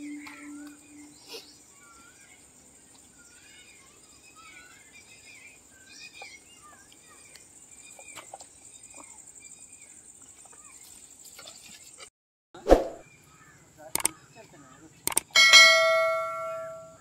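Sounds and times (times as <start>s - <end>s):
birds chirping and warbling: 0.0s - 12.1s, 13.0s - 17.0s
faint clicks: 14.0s - 14.2s, 15.1s - 15.3s.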